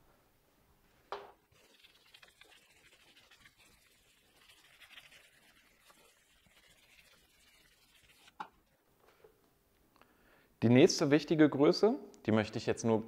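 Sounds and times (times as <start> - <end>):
eraser rubbing whiteboard: 1.5 - 8.8.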